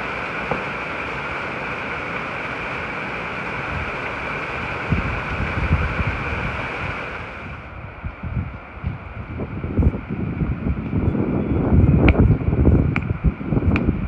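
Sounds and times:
river rushing: 0.0 - 8.0
wind gusting on microphone: 3.0 - 14.0.

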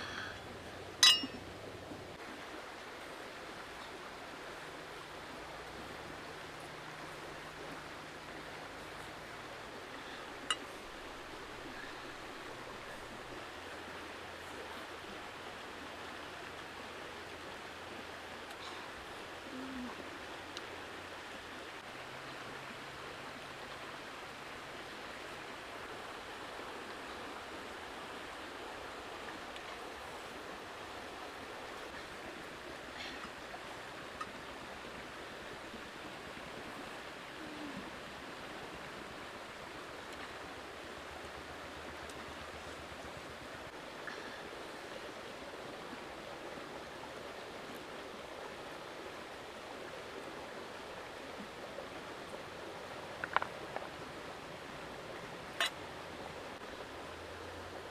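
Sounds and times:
river flowing over stones: 0.0 - 57.9.

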